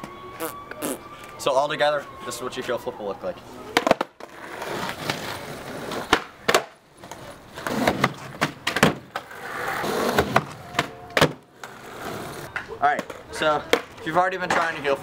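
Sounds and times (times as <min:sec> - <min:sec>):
skateboard wheels rolling on concrete: 0:03.5 - 0:15.0
skateboard deck clacks: 0:10.0 - 0:14.8.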